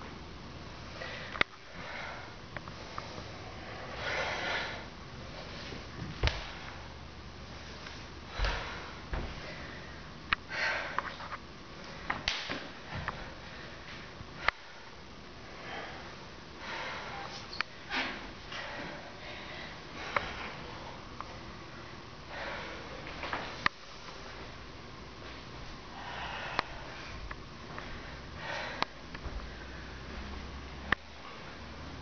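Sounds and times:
bare feet slapping wooden floor: 6.0 - 6.7.

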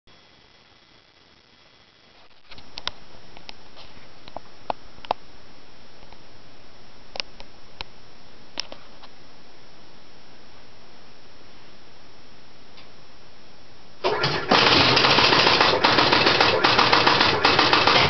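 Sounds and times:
pinball machine sharp clicks: 14.1 - 18.0.

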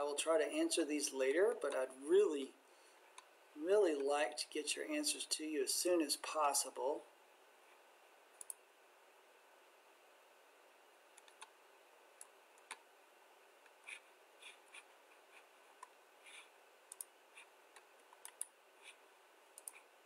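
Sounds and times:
low room hiss: 0.0 - 20.0
mouse and keyboard clicking: 11.2 - 11.5, 15.8 - 19.0, 19.6 - 19.9.

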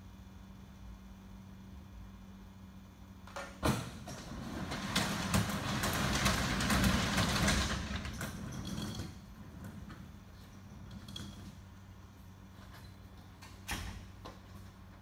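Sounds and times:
rattling scraping metal: 4.1 - 11.7.

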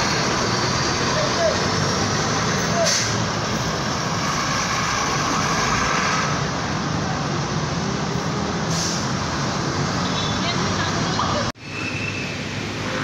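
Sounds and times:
bus engine pulling away: 0.0 - 10.0
cars passing: 0.0 - 13.0
steady traffic din: 0.0 - 13.0.

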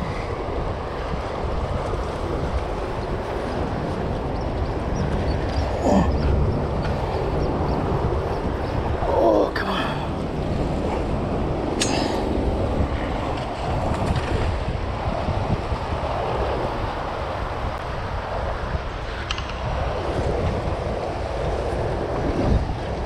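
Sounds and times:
rushing churning water: 0.0 - 23.0
wind buffeting microphone: 0.0 - 23.0.

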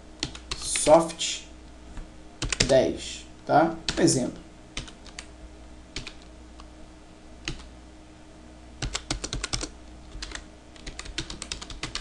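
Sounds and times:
computer keyboard typing: 0.2 - 0.9, 2.4 - 2.8, 3.9 - 4.1, 4.8 - 5.3, 6.0 - 6.2, 7.4 - 7.7, 8.8 - 12.0.

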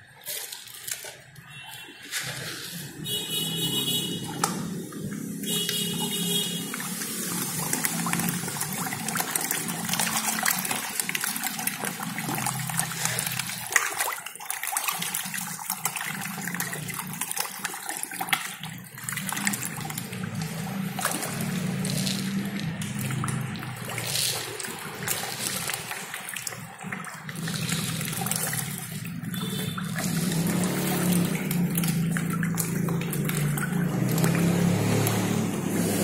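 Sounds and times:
fish splashing in water: 0.0 - 36.0.

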